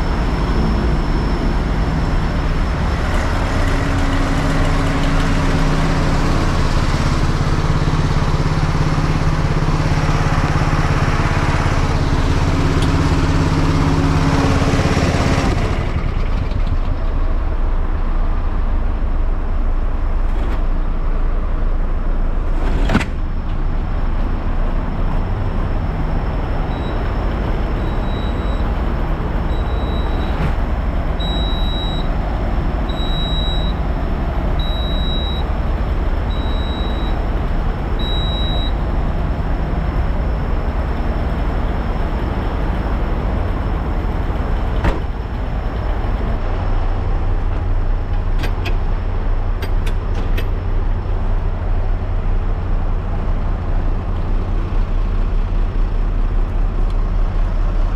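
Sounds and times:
diesel engine drone: 0.0s - 57.9s
short high beeps: 27.8s - 28.7s, 31.2s - 32.1s, 32.9s - 33.8s, 34.6s - 35.5s, 36.3s - 37.2s, 38.0s - 38.8s.

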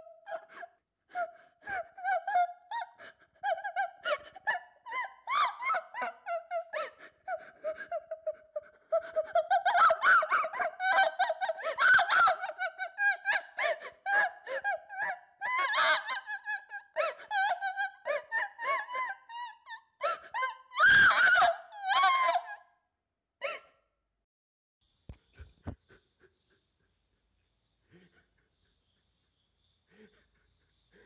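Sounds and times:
girl sobbing and gasping: 0.0s - 22.6s.

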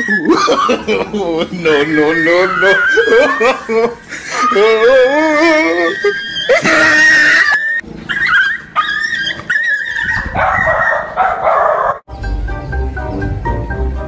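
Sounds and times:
dogs yelping and squealing: 0.0s - 1.0s, 1.6s - 12.0s
background music with steady beat: 12.1s - 14.0s.

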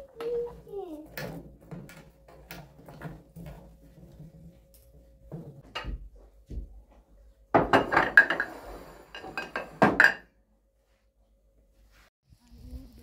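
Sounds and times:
kitchenware clattering and clinking: 0.0s - 6.0s, 7.5s - 10.4s.

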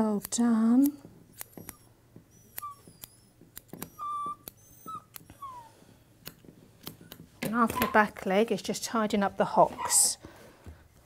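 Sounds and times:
scissors snipping: 0.0s - 1.9s, 2.5s - 5.5s, 6.2s - 7.2s
puppy whining: 1.4s - 6.0s, 7.6s - 8.2s, 9.7s - 10.2s.

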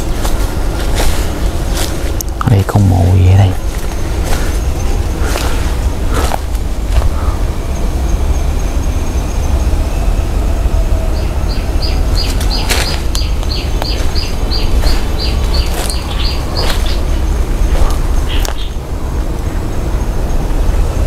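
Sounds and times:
low microphone rumble: 0.0s - 21.0s
small bird chirping: 11.1s - 18.8s.

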